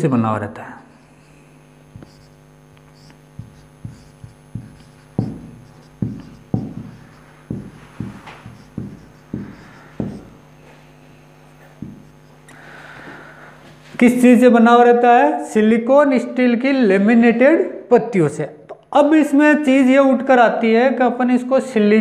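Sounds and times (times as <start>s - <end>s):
steady low hum: 0.0s - 14.3s
marker tip tapping whiteboard: 1.9s - 10.8s, 11.6s - 12.3s.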